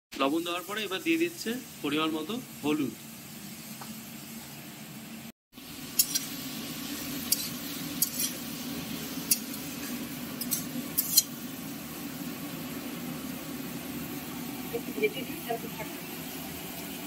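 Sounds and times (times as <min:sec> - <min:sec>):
spatula scraping a pan: 0:06.0 - 0:11.4.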